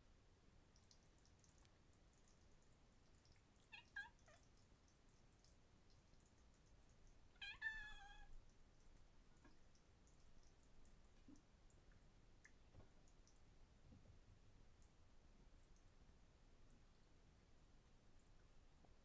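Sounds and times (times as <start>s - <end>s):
kitten meowing: 7.4s - 8.3s.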